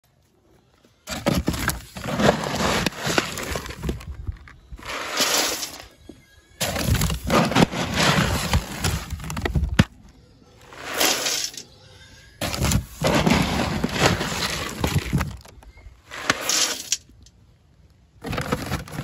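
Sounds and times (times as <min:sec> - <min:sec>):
feed pellets pouring into metal bucket: 0:04.8 - 0:05.9, 0:10.8 - 0:11.6, 0:16.2 - 0:17.0.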